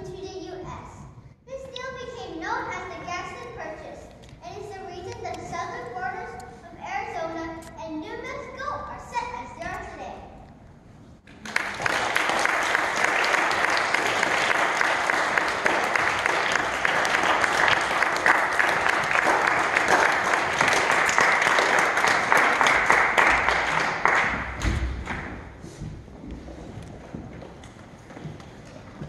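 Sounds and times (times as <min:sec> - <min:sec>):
audience applauding: 0:11.3 - 0:24.6.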